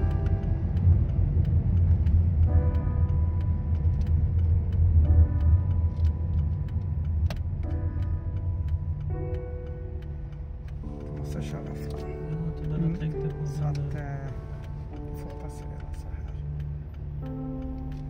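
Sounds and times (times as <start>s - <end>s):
car engine and tyres rumbling: 0.0s - 18.0s
soft sustained musical chords: 0.0s - 18.0s.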